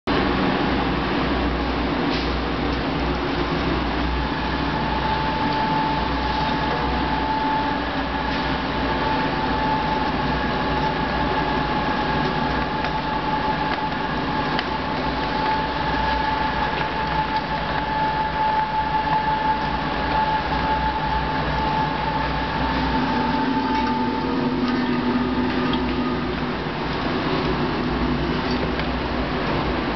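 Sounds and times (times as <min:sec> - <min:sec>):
high machine whine: 0:00.1 - 0:29.9
machine humming: 0:02.7 - 0:29.9.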